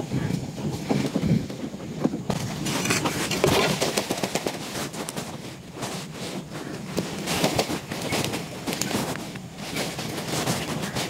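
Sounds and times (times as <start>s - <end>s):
dry soil and leaves crackling: 2.3s - 11.0s.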